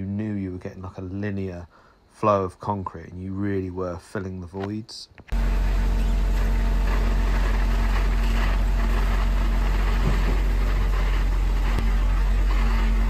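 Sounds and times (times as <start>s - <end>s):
concrete pump engine drone: 5.3s - 13.0s.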